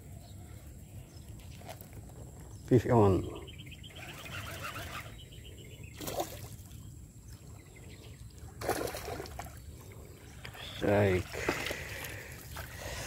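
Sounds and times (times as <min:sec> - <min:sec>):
fish splashing in water: 0:08.5 - 0:09.6.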